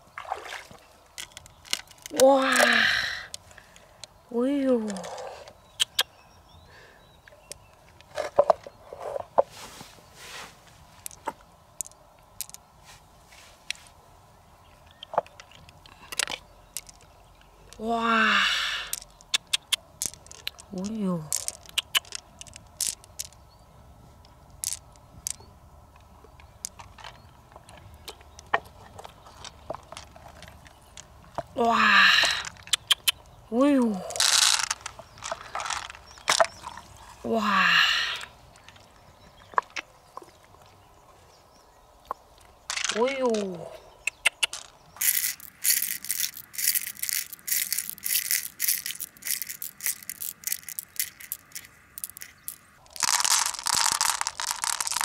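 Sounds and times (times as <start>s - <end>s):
wet clicks and squelches: 0.5s - 4.2s, 4.8s - 6.1s, 14.8s - 17.8s, 18.8s - 23.4s, 24.5s - 31.5s, 32.3s - 33.4s, 34.1s - 36.9s, 44.0s - 55.0s
pearls dropped rattling into shell: 1.2s - 3.3s, 11.0s - 12.6s, 16.1s - 17.1s, 18.8s - 23.4s, 24.5s - 25.5s, 34.1s - 36.5s, 42.7s - 43.5s, 44.1s - 55.0s.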